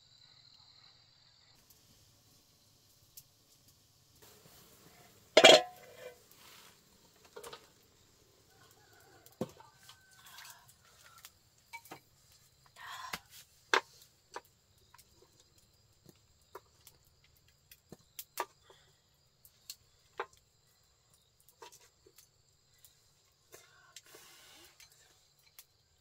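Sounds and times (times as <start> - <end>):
utensil scraping rustle: 4.2 - 7.8, 24.1 - 25.3
utensil tapping metal pot: 5.4 - 6.2.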